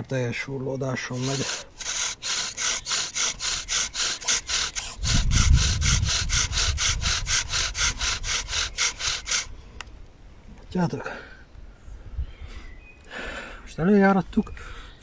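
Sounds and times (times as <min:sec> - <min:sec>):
bow drill rasping: 0:00.9 - 0:09.5.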